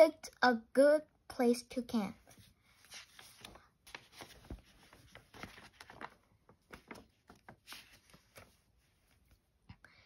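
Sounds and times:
paper page turning: 2.3s - 9.4s.

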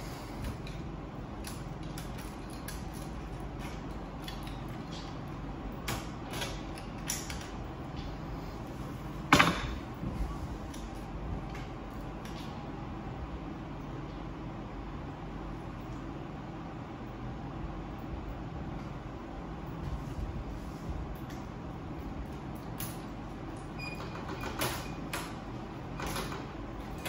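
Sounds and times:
steady low hum: 0.0s - 27.0s.

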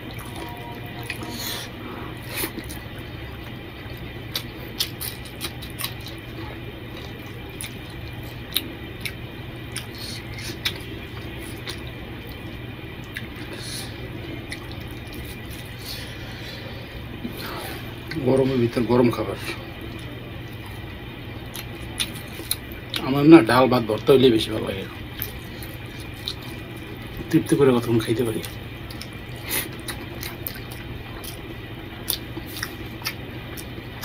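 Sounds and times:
low hum: 0.0s - 34.0s.

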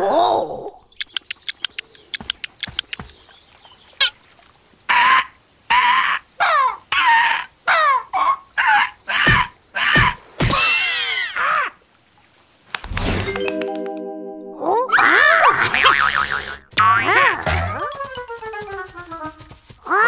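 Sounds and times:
cartoon bird clucking and squawking: 4.9s - 11.4s, 14.9s - 18.0s.

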